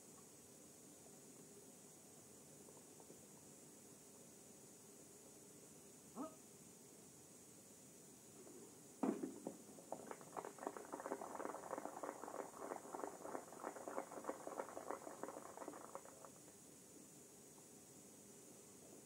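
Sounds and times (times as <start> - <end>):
shotgun shot: 9.0 - 9.5.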